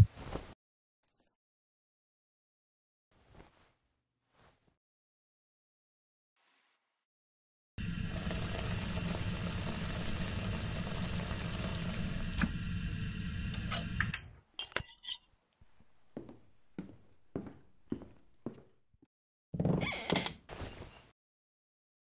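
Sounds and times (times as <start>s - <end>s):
plate and knife clinking: 14.6s - 15.3s.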